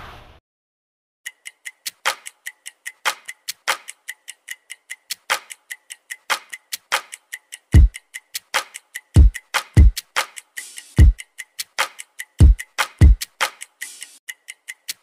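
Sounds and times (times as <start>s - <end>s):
clock-like ticking beat: 1.3s - 15.0s
deep kick drum: 9.2s - 10.0s, 12.4s - 13.2s.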